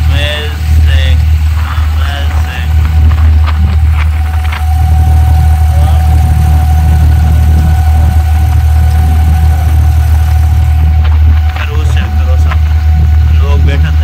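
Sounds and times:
boat engine droning: 0:00.0 - 0:14.0
thin engine whine: 0:00.0 - 0:14.0.

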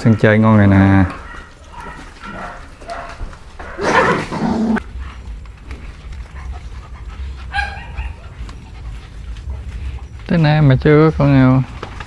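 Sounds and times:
dog growling: 0:03.6 - 0:05.1.

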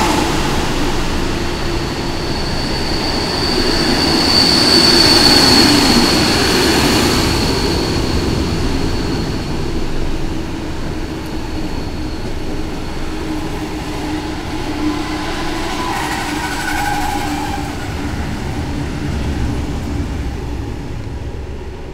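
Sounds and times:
train wheels rumbling on rails: 0:00.0 - 0:21.9.

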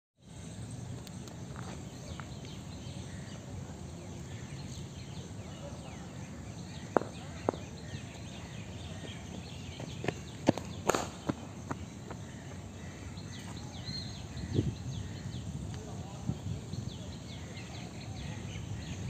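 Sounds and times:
low outdoor rumble: 0:00.2 - 0:19.0
birds chirping: 0:00.3 - 0:19.0.

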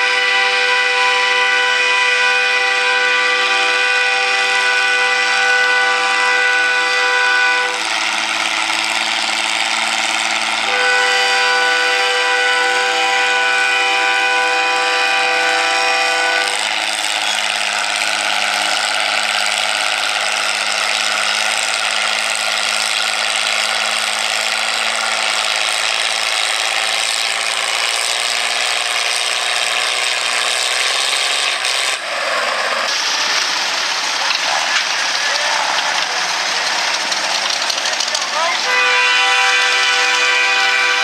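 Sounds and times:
sled grinding and scraping: 0:00.0 - 0:41.0
tractor engine under load: 0:00.0 - 0:41.0.

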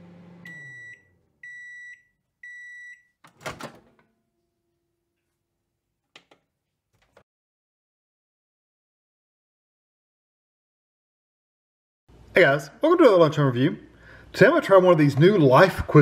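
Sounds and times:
microwave oven hum: 0:00.0 - 0:02.8
high microwave beeps: 0:00.4 - 0:03.2.

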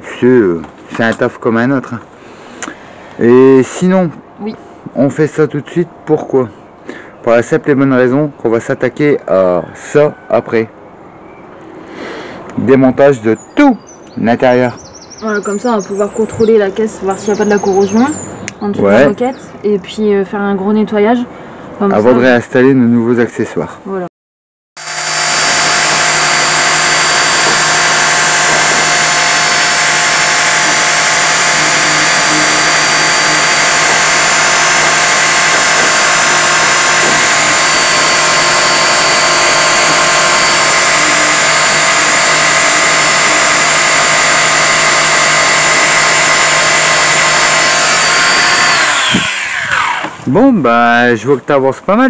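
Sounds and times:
electric sander running: 0:24.8 - 0:50.3.

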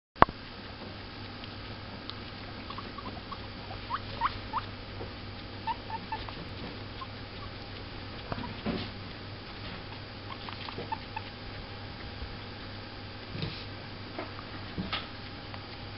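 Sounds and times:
guinea pigs squeaking: 0:00.7 - 0:12.4.

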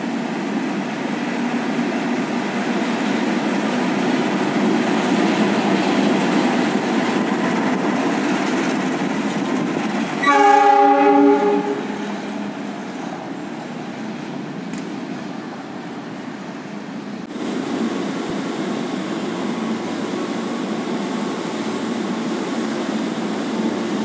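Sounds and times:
diesel locomotive rumbling: 0:00.0 - 0:24.0
locomotive horn blast: 0:10.2 - 0:12.0.

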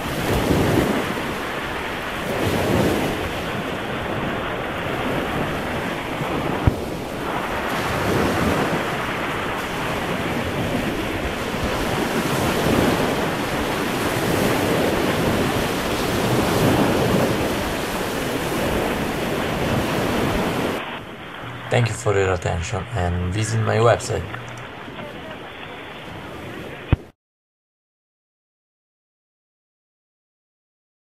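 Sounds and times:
wind buffeting microphone: 0:00.0 - 0:21.7
sea surf washing onto beach: 0:00.0 - 0:27.1.

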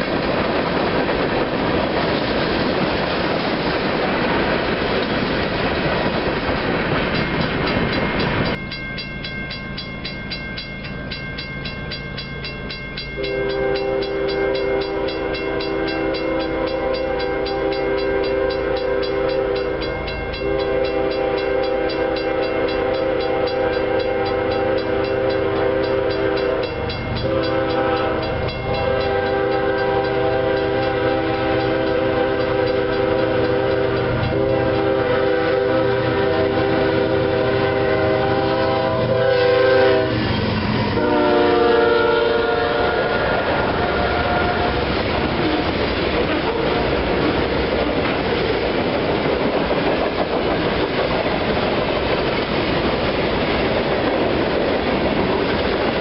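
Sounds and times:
freight cars rolling on rails: 0:00.0 - 0:56.0
crossing bell ringing: 0:07.1 - 0:47.8
locomotive air horn blowing: 0:13.2 - 0:47.0.

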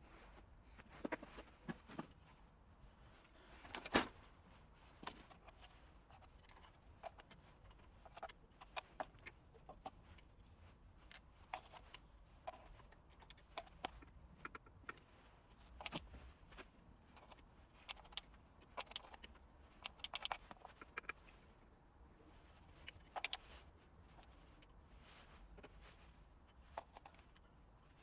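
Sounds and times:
metal parts and tools clinking: 0:24.3 - 0:27.5.

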